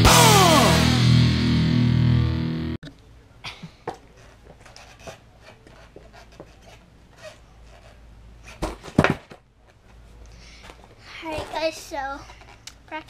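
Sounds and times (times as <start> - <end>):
shoe and board scuffs: 4.2 - 9.4.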